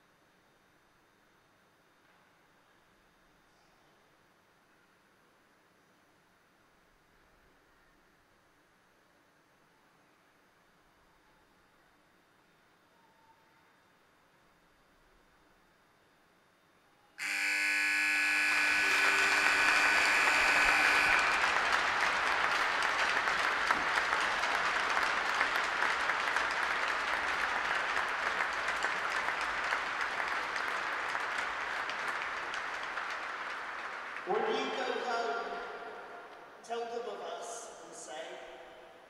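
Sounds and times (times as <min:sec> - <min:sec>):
arena horn steady note: 0:17.2 - 0:22.7
crowd applauding: 0:17.2 - 0:35.8.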